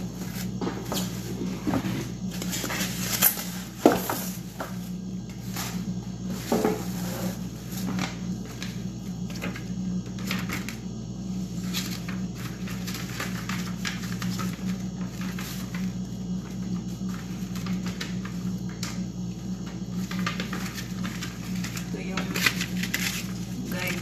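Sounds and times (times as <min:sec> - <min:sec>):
steady low hum: 0:00.0 - 0:24.0
bubble wrap crackling: 0:11.4 - 0:18.8, 0:19.9 - 0:24.0.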